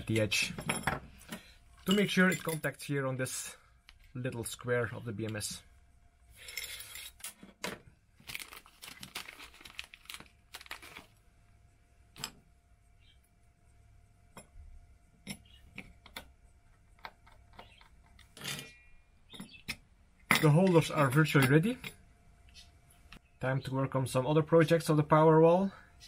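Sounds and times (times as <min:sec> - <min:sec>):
plastic bag crinkling: 0:08.2 - 0:11.2.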